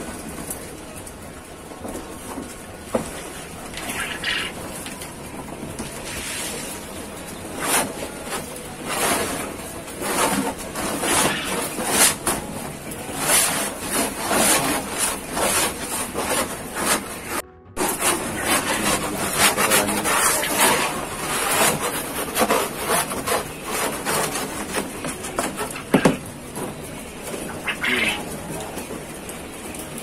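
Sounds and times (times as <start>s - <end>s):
wooden slat scraping wooden tray: 7.5s - 12.4s, 13.1s - 26.7s.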